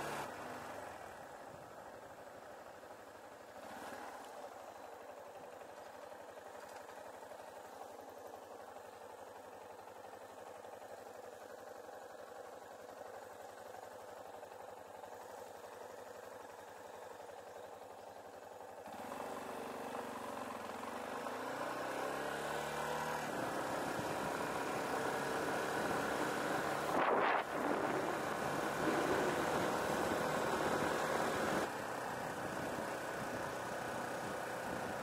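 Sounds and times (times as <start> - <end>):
wind and road noise: 0.0 - 11.5, 18.8 - 35.0
motorcycle engine idling and accelerating: 0.0 - 35.0.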